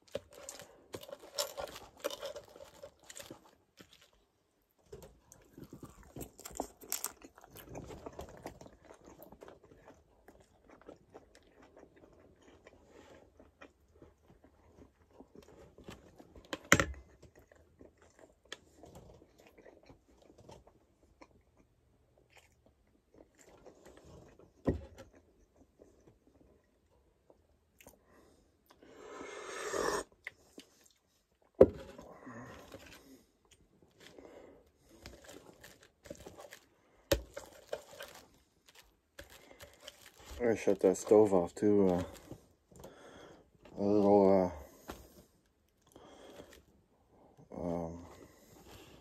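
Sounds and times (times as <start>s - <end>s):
person chewing food: 0.0s - 43.8s.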